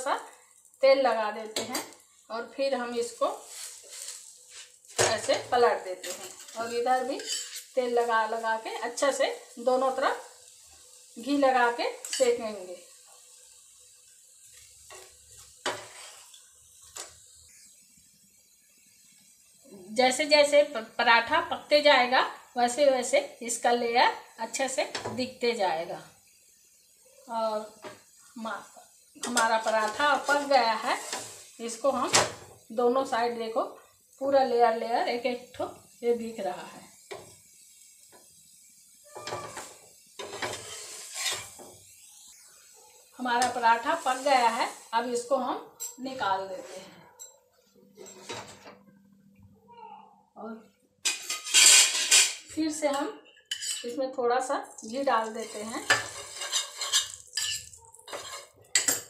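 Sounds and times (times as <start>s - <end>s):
faint sizzle: 0.0s - 59.0s
spatula scraping a griddle: 3.3s - 5.4s, 6.0s - 8.6s, 14.5s - 17.2s, 29.2s - 32.0s, 39.1s - 41.8s, 43.4s - 44.9s, 46.4s - 47.0s, 47.9s - 48.7s, 51.1s - 52.4s, 53.4s - 54.0s, 55.1s - 59.0s
steel spoon clinking on pan: 7.2s - 7.7s, 53.4s - 54.0s, 55.8s - 59.0s.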